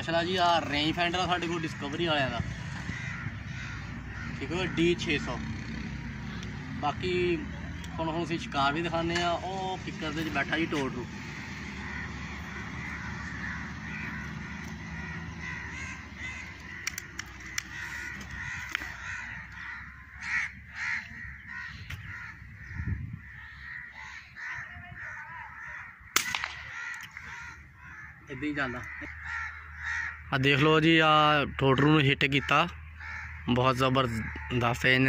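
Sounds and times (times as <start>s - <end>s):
birds calling: 0.0s - 35.0s
air rifle shot crack: 26.1s - 26.8s.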